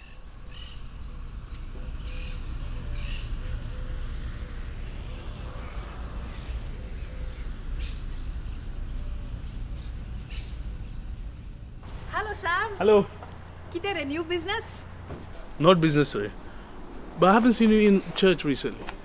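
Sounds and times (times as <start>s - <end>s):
higher bird calls: 0.0s - 11.3s
steady low rumble: 0.0s - 18.8s
birds chirping: 0.0s - 19.0s.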